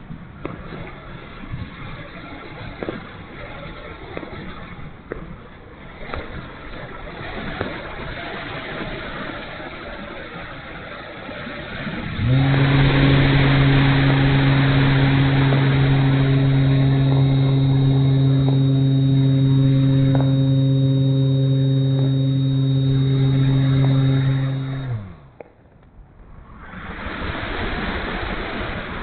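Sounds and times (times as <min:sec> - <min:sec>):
wind over microphone: 0:00.0 - 0:29.0
electric motor and propeller whine: 0:05.8 - 0:25.4.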